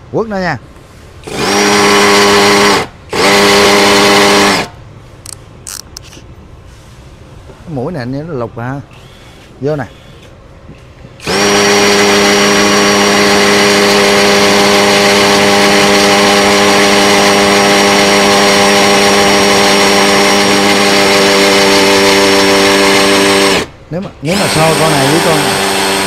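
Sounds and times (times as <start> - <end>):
drill boring into concrete: 1.2 - 4.7, 8.9 - 10.3, 11.2 - 26.0.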